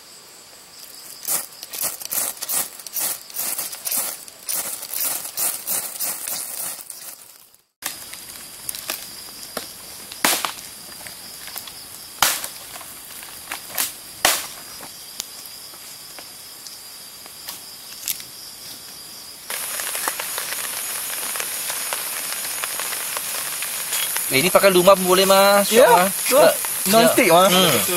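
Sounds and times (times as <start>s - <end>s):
high insect trill: 0.0s - 27.9s
campfire crackling and popping: 1.2s - 18.3s, 19.5s - 27.9s
gas stove hissing: 19.5s - 27.9s.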